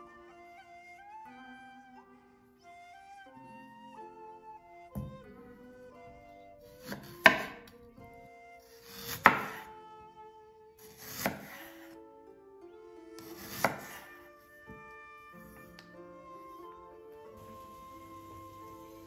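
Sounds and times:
knife slicing through root: 6.7 - 7.7, 8.6 - 9.7, 10.8 - 12.0, 13.2 - 14.2.

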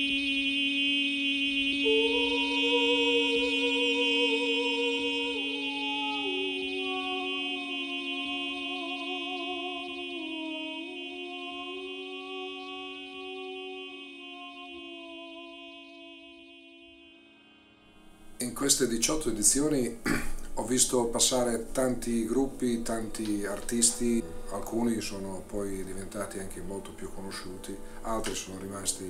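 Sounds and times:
sung vocal drone: 0.0 - 29.0
wavering sung pitch: 0.0 - 29.0.

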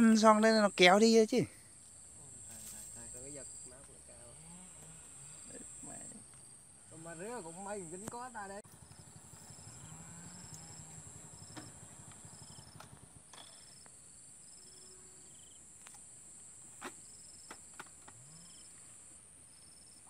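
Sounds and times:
insects droning: 0.0 - 20.0
short high insect chirps: 9.3 - 16.3.

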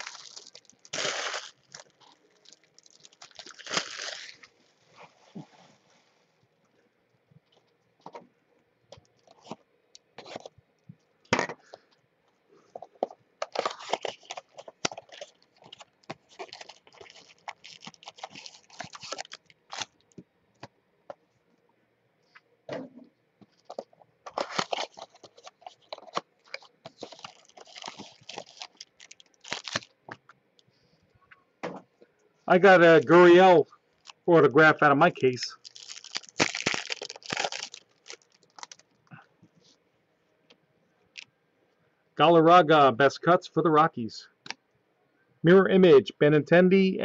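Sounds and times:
cardboard box and foil packs handled: 0.0 - 4.6, 12.7 - 20.1, 23.6 - 29.9, 35.6 - 38.9
cellophane crinkling and tearing: 0.0 - 4.6, 13.4 - 20.2, 23.6 - 30.2, 35.2 - 39.0.

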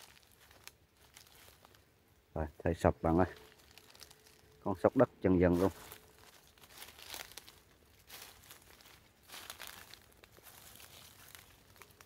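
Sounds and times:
twigs snapping: 0.0 - 1.8, 3.4 - 4.6, 5.6 - 12.0
footsteps crunching through dry leaves: 0.0 - 2.0, 3.0 - 12.0.

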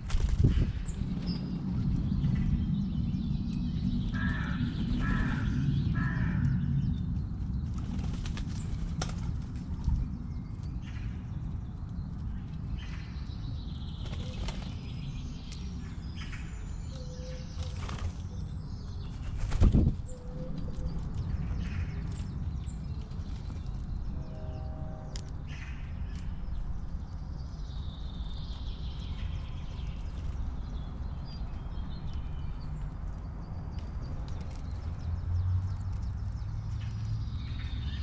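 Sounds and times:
dove wings fluttering: 0.0 - 1.3, 7.6 - 10.1, 14.0 - 15.1, 17.6 - 20.1.

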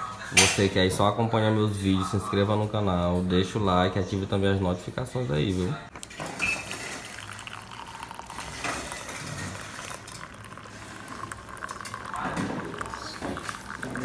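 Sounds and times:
coffee pouring into a mug: 6.0 - 14.0.

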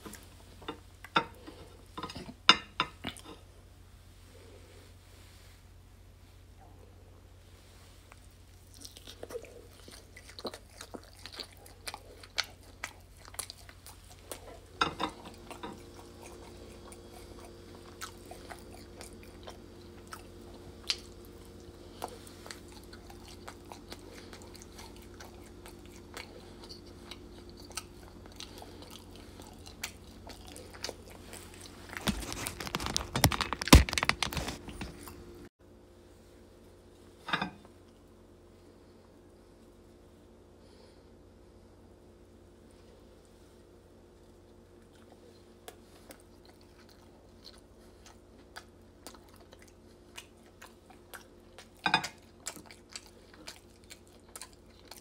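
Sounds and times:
chewing crispy food: 8.0 - 35.2, 44.2 - 55.0.

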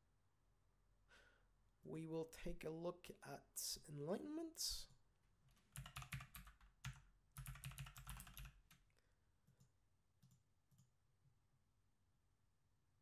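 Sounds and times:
typing on a keyboard: 5.7 - 8.8.

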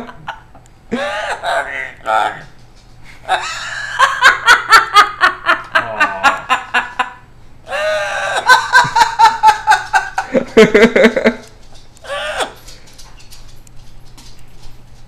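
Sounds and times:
parrot laughing: 0.0 - 2.4, 3.2 - 12.6.

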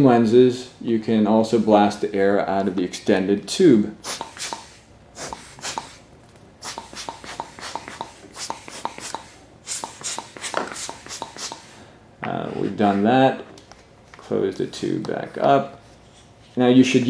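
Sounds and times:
air blower puffs: 4.0 - 13.2.

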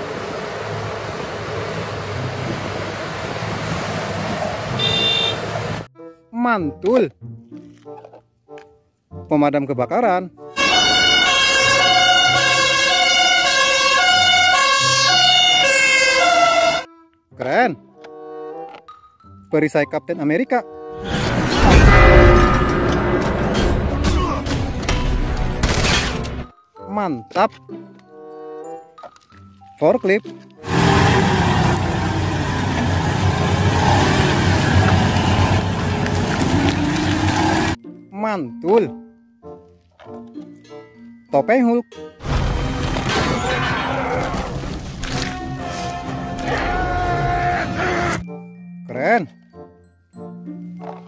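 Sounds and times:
two-tone fire engine siren: 10.6 - 16.9.

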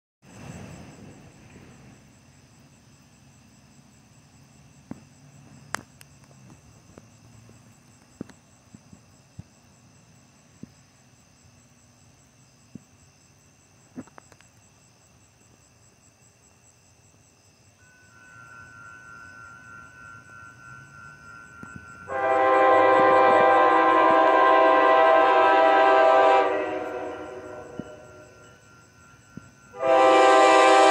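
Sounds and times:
faint high-pitched background: 17.4 - 22.9
distant train horn: 17.8 - 30.9
loud locomotive horn chord: 22.0 - 28.5, 29.7 - 30.9.

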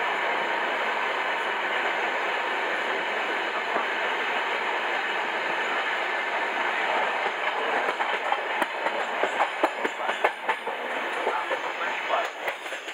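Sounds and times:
train wheels rumbling on rails: 0.0 - 12.9
wheels clacking and knocking: 7.0 - 12.9.

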